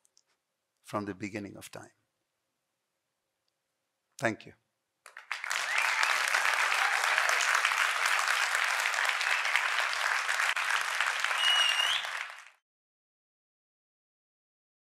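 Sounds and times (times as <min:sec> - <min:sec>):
audience applauding: 0:05.1 - 0:12.6
short high whistle: 0:11.3 - 0:12.3.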